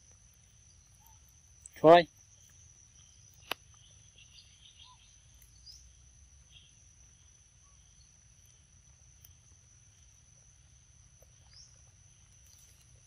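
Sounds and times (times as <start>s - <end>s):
high insect drone: 0.0s - 13.0s
faint bird chirps: 0.5s - 8.3s, 11.2s - 12.8s.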